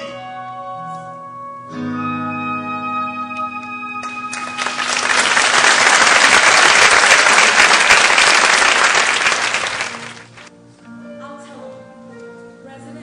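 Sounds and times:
audience applauding: 4.0s - 10.5s
quiet music: 10.5s - 13.0s.

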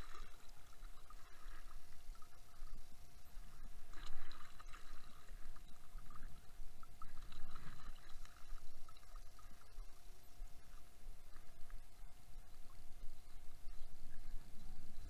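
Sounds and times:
muffled water sloshing: 0.0s - 15.0s.

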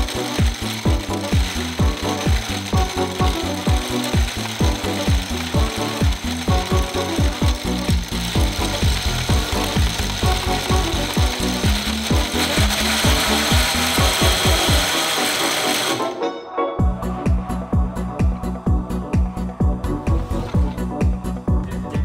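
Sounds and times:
gear train clicking: 0.0s - 16.2s
motor whine: 0.0s - 16.2s.

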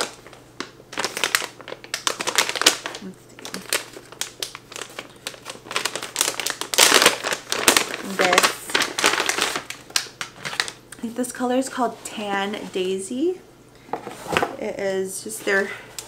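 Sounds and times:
paper bag crinkling: 0.0s - 10.8s.

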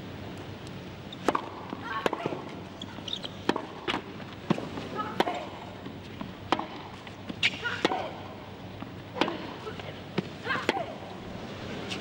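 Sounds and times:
racket hitting tennis ball: 1.2s - 2.6s, 3.4s - 8.3s, 9.1s - 11.0s.

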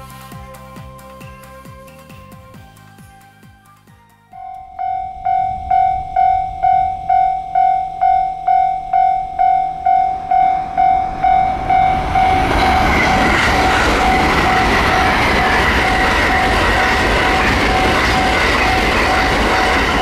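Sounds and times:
train passing: 4.3s - 20.0s
level crossing bell ringing: 4.4s - 19.4s.

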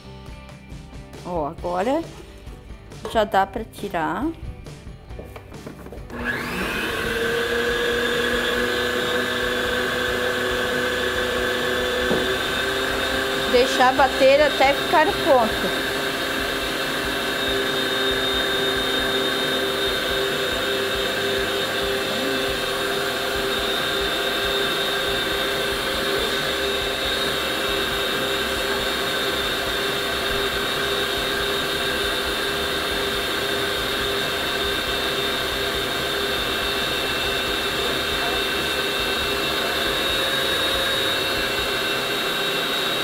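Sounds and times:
stand mixer whisking: 6.1s - 43.0s.

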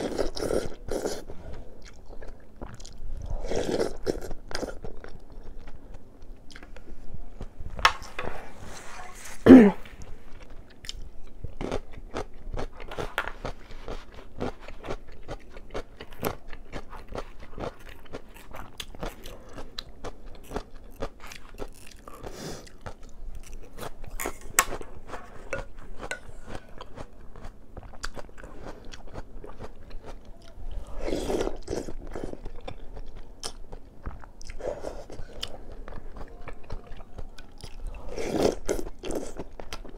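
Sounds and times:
crunchy chewing: 10.0s - 39.9s.

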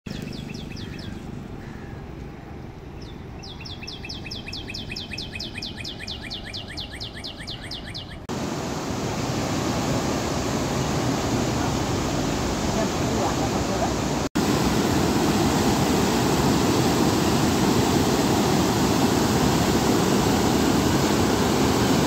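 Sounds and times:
bird chirping fast high calls: 3.0s - 8.3s
river rushing through gorge: 8.3s - 22.0s.

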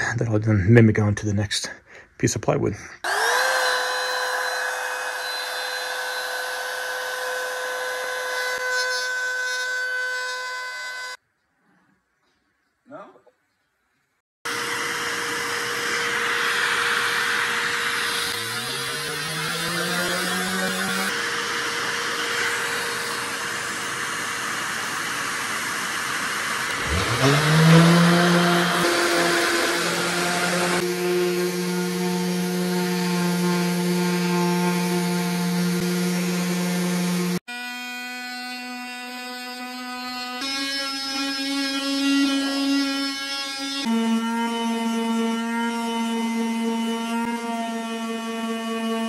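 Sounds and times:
trim router whining: 3.0s - 11.2s, 14.5s - 49.0s
dust hose rushing noise: 15.6s - 30.9s.

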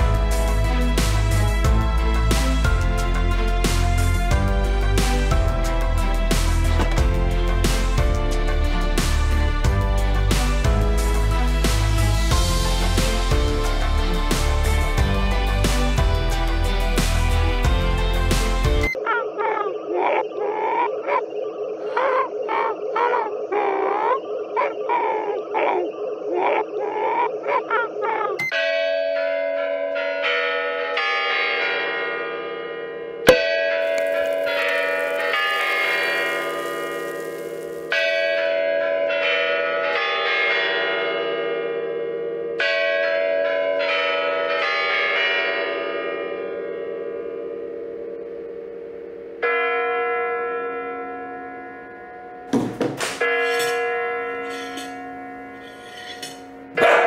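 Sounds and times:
warbling chirping alien calls: 19.0s - 28.4s
clock bell chimes: 28.4s - 57.0s.

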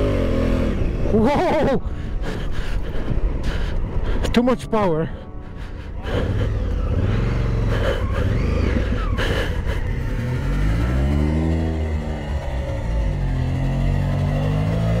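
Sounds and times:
motorcycle engine revving: 0.0s - 1.8s, 6.0s - 15.0s.

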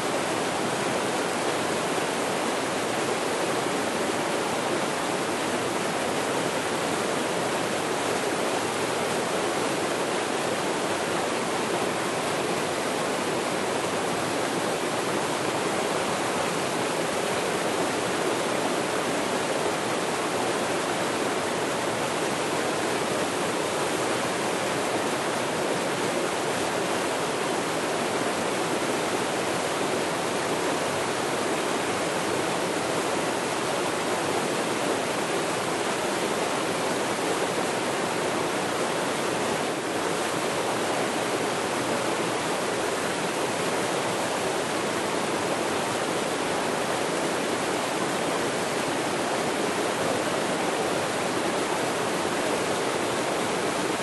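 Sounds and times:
waterfall rushing and splashing: 0.0s - 54.0s.

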